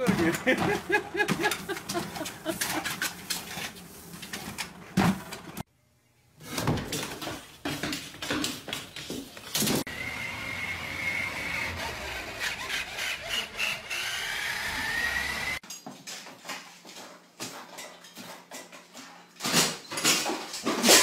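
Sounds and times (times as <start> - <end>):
toy electric motor whining: 9.9 - 15.6.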